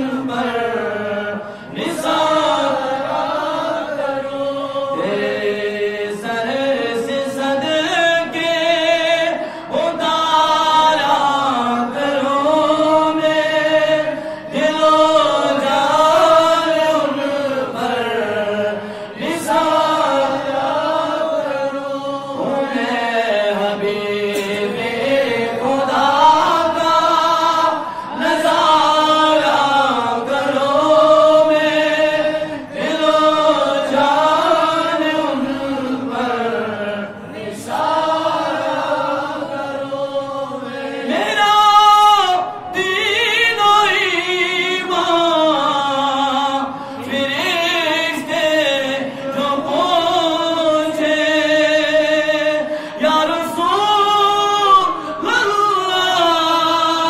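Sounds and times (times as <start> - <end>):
man singing unaccompanied: 0.0 - 37.1, 40.0 - 57.0
singer breathing: 1.4 - 1.8, 9.4 - 9.8, 14.1 - 14.6, 18.8 - 19.2, 27.8 - 28.2, 46.7 - 47.0, 52.6 - 53.0.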